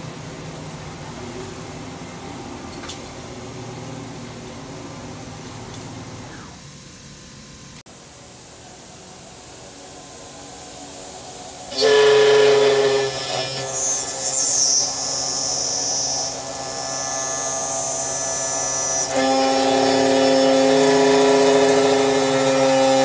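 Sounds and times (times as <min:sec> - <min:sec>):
shrill high-pitched machining tone: 0:09.0 - 0:23.0
spindle cutting aluminum whine: 0:10.5 - 0:23.0.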